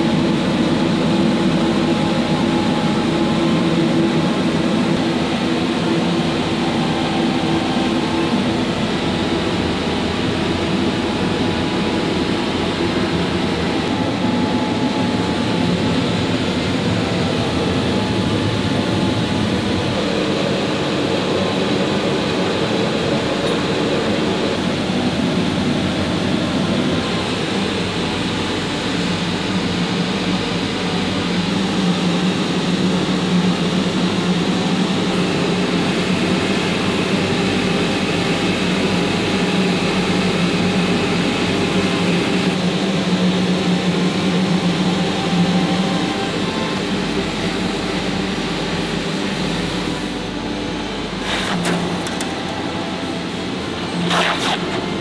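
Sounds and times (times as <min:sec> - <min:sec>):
woodworking machinery running: 0:00.0 - 0:55.0.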